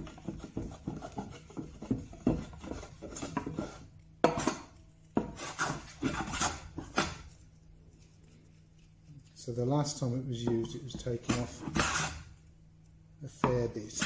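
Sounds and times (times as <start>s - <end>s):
hand plane scraping wood: 0.0s - 3.9s, 5.2s - 7.1s, 11.0s - 12.2s.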